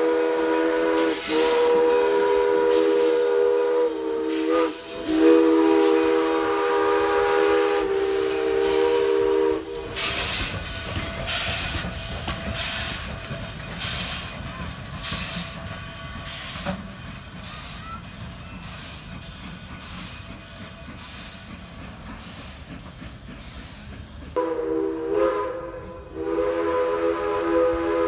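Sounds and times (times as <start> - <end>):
steam whistle blasts: 0.0 - 10.3, 24.4 - 28.0
hiss of steam: 0.0 - 24.4
steam locomotive chuffing: 0.0 - 28.0.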